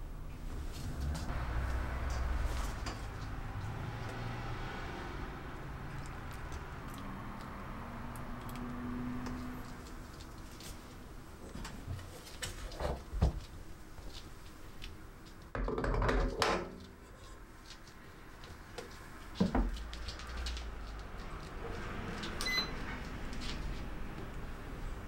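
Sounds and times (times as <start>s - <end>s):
short high beep: 22.4s - 22.8s.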